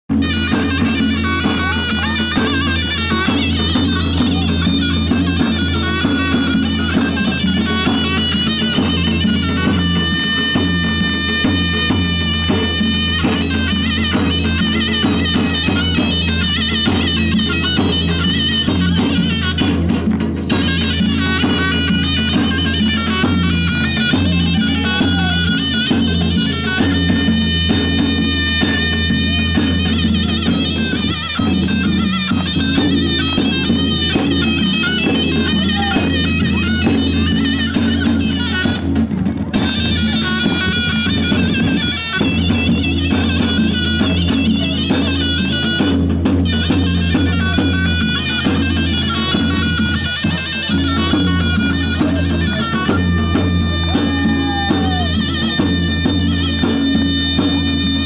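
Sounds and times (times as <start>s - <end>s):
folk dance music: 0.1s - 58.0s
reedy wind instrument melody: 0.1s - 58.0s.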